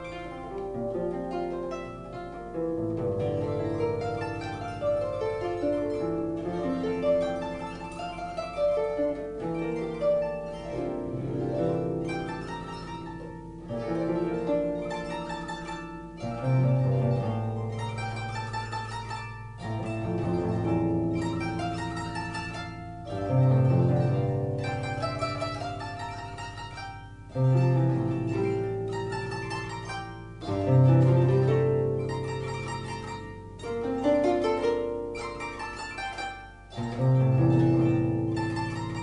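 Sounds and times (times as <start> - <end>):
harp melody: 0.0 - 39.0.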